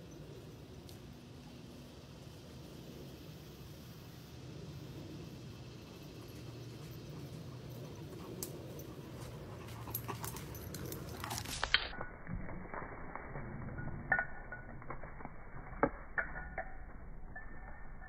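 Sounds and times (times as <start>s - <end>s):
dog panting: 6.4s - 11.5s.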